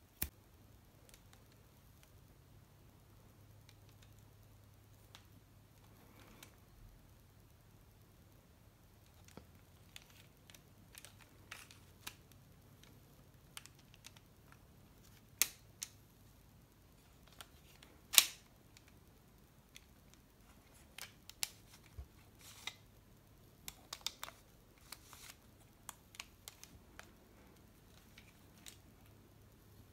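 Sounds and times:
sharp plastic snaps: 0.1s - 0.4s, 9.0s - 16.1s, 17.2s - 22.9s, 23.6s - 29.2s.

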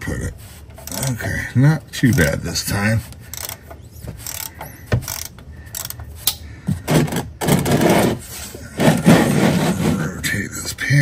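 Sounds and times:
hand ratchet clicking: 0.8s - 1.1s, 2.0s - 2.4s, 3.1s - 6.4s.

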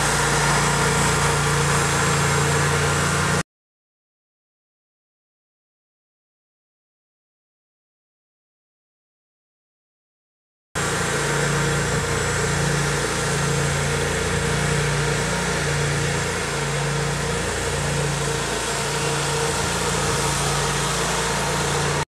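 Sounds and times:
stump grinder engine running: 0.0s - 3.4s, 10.8s - 22.0s.

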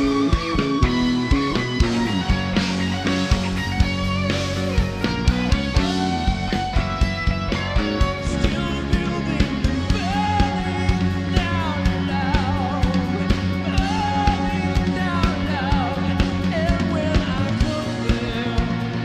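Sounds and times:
drum kit beat: 0.0s - 19.0s
electric guitar: 0.0s - 19.0s
keyboard: 0.0s - 19.0s
man singing: 8.2s - 19.0s.

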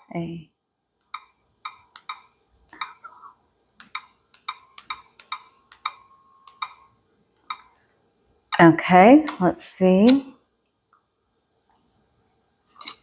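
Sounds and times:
touchscreen keyboard ticks: 1.0s - 3.2s, 3.8s - 6.8s.

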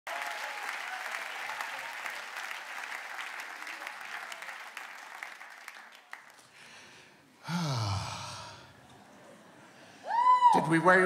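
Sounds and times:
audience applause: 0.1s - 6.8s
breathy sigh into microphone: 6.6s - 8.8s.

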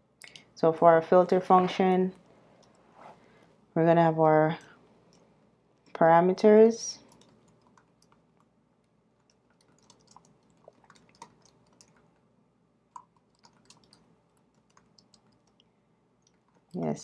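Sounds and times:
faint keyboard typing: 7.0s - 12.2s, 12.9s - 17.0s.

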